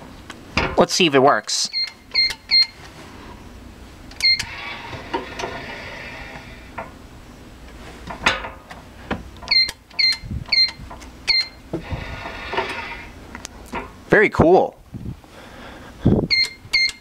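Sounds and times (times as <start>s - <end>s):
keypad beeps: 1.7s - 2.8s, 4.2s - 4.5s, 9.5s - 11.6s, 16.3s - 17.0s
safe lock whirring and rattling: 4.0s - 7.1s, 8.1s - 14.0s.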